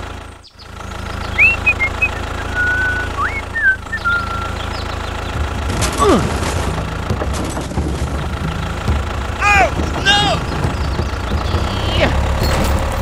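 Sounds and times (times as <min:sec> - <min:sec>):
model tractor engine drone: 0:00.0 - 0:07.0
whistled bird chirps: 0:01.2 - 0:05.0
falling whistle: 0:01.4 - 0:04.6.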